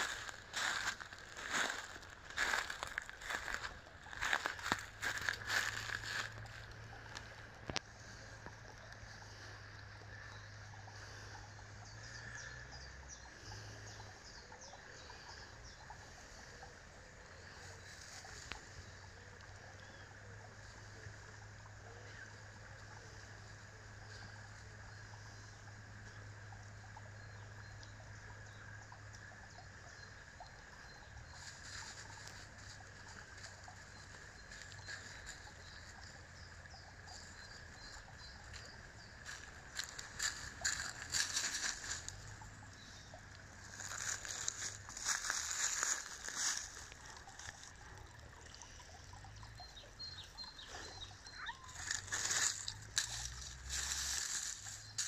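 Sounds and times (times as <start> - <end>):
footsteps crunching dry leaves: 0.0 - 7.3, 38.5 - 47.8, 51.5 - 55.0
brook trickling: 0.0 - 55.0.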